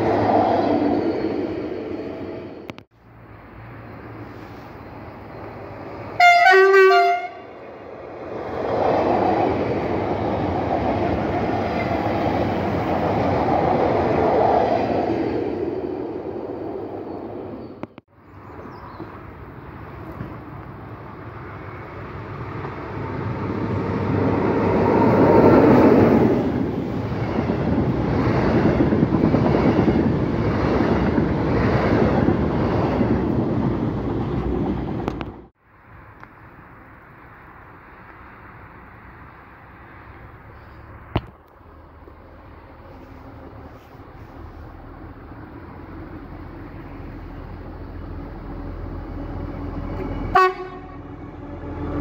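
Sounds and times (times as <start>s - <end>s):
train wheel and rail noise: 0.0s - 52.0s
train horn blast: 6.2s - 7.6s, 49.5s - 52.0s.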